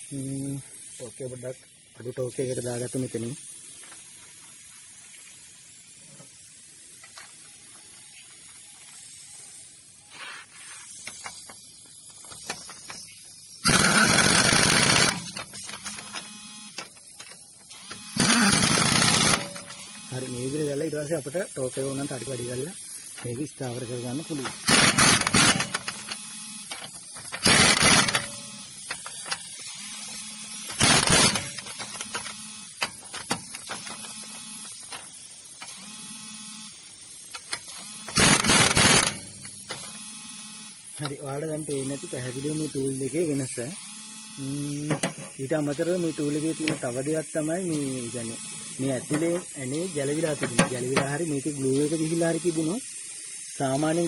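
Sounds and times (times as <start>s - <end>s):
pneumatic impact wrench hammering: 10.8s - 20.8s, 21.7s - 54.0s.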